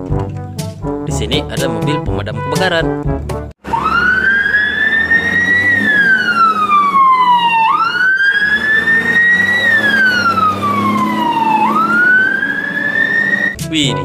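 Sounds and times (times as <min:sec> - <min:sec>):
fire engine siren wailing: 0:03.6 - 0:13.6
truck engine running: 0:03.6 - 0:13.6.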